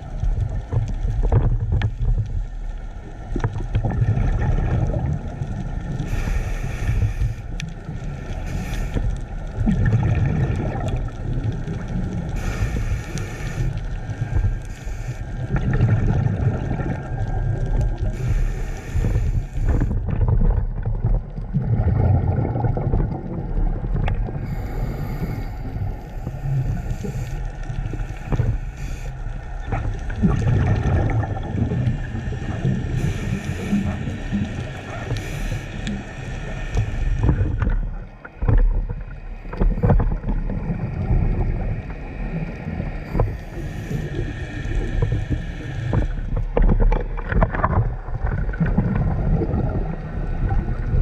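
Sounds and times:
bubbling exhaled air: 0:03.7 - 0:51.0
regulator hissing inhale: 0:06.0 - 0:09.5, 0:12.3 - 0:15.8, 0:18.0 - 0:20.0, 0:24.3 - 0:29.7, 0:31.8 - 0:37.8, 0:41.0 - 0:46.4.

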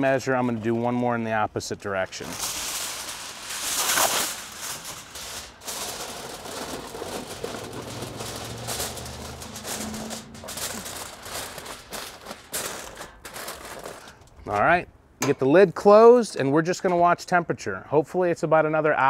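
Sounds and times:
aluminium foil crinkling: 0:01.8 - 0:14.7.

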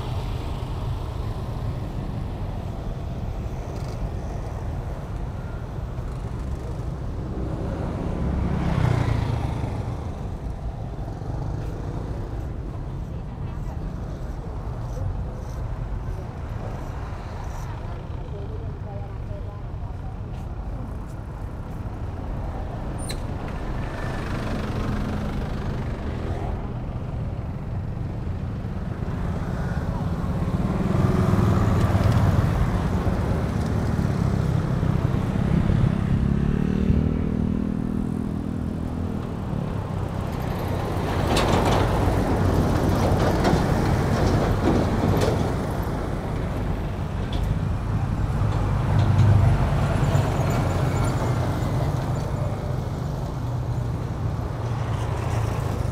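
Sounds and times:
motorcycles and scooters passing: 0:00.0 - 0:19.4, 0:21.9 - 0:44.2, 0:45.5 - 0:55.9
engine revving up: 0:35.4 - 0:38.0.

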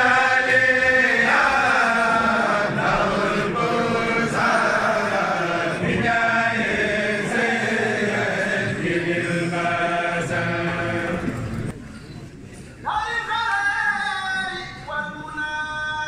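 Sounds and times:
men chanting: 0:00.0 - 0:11.4.

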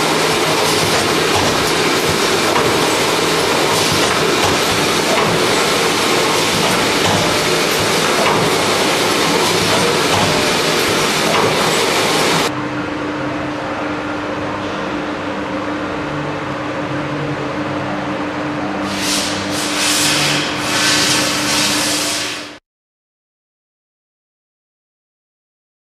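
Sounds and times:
machine mechanical clatter: 0:00.0 - 0:12.5
steady hum: 0:00.0 - 0:22.3.

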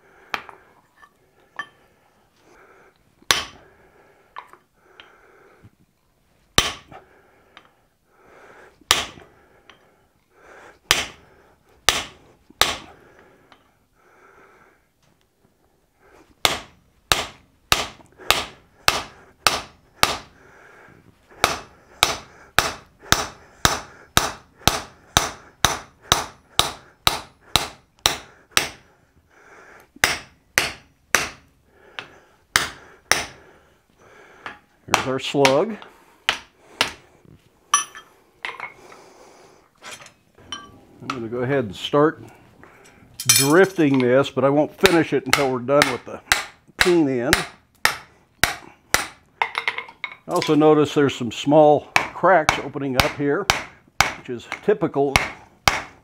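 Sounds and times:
hammer striking punch on anvil: 0:03.3 - 0:03.6, 0:30.0 - 0:31.4, 0:52.0 - 0:54.6, 0:55.2 - 0:55.9.

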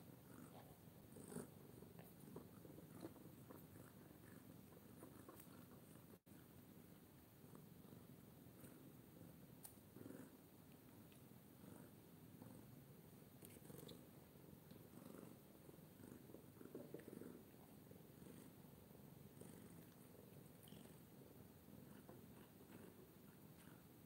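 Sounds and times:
cat purring: 0:00.0 - 0:24.0.

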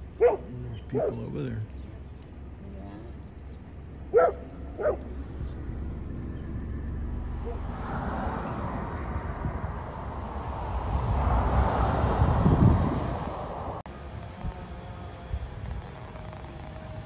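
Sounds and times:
car road and tyre noise: 0:00.0 - 0:17.0
dog barking: 0:00.2 - 0:01.4, 0:04.1 - 0:05.2.

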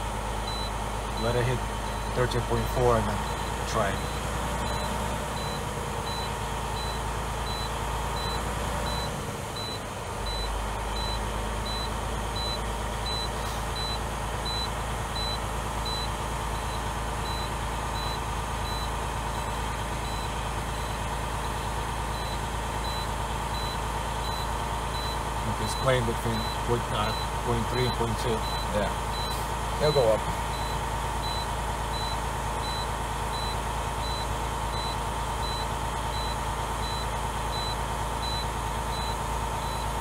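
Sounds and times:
idling engine hum: 0:00.0 - 0:40.0
faint high-pitched beeping: 0:00.5 - 0:18.9, 0:22.1 - 0:32.8.

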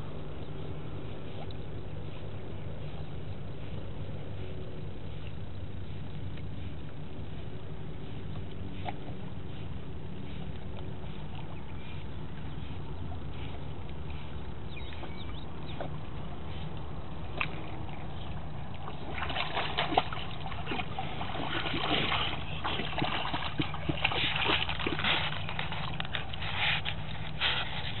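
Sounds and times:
steady low rumble: 0:00.0 - 0:28.0
dog splashing in water: 0:17.2 - 0:28.0.

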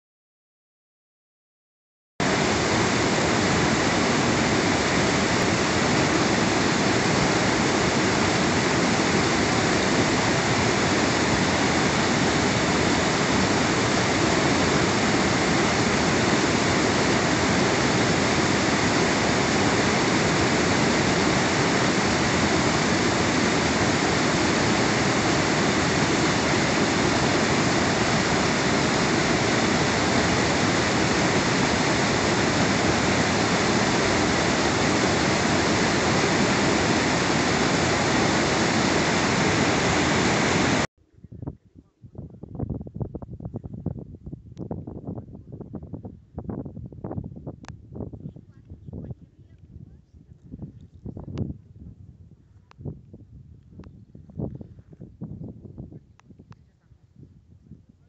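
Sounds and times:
stream rushing over boulders: 0:02.2 - 0:40.9.

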